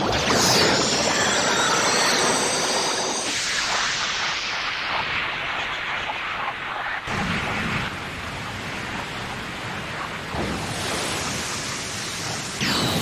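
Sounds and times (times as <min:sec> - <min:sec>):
electric crackle and rush: 0:00.0 - 0:13.0.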